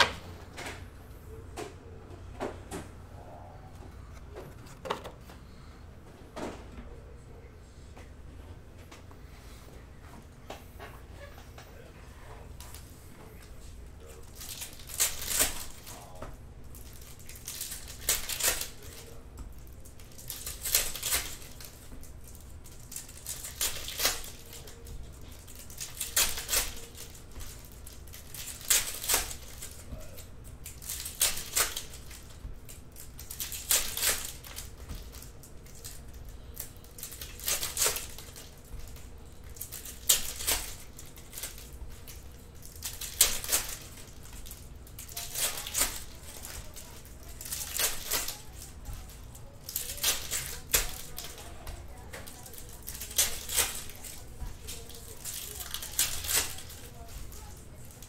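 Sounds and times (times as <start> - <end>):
trading cards rustling: 13.7 - 58.0.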